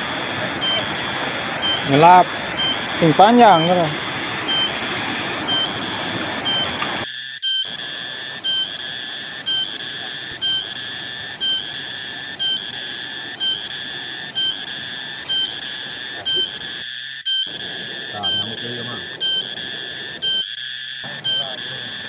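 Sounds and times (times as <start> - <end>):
fast river rushing: 0.0 - 7.0
pulsing high whistle-like tone: 0.0 - 22.0.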